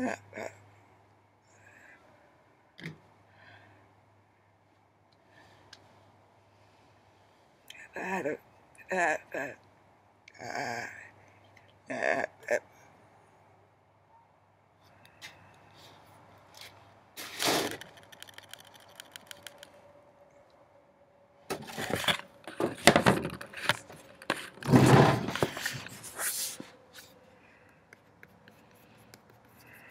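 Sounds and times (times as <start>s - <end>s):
scattered clicks: 17.7s - 19.8s
rustling handling noise: 21.6s - 27.2s.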